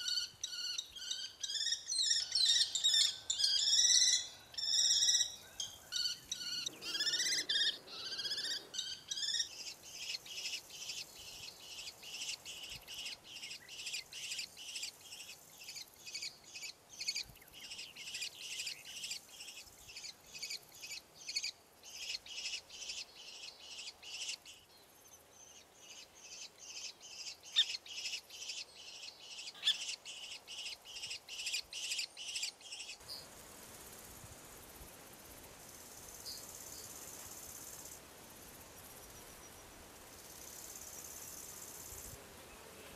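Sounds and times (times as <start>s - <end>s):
kestrels calling: 0.0s - 20.6s, 25.9s - 33.0s
faint steady hiss: 0.0s - 42.9s.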